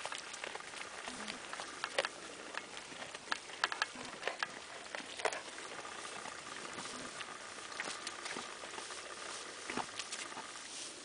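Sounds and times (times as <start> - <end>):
goat chewing hay: 0.0 - 11.0.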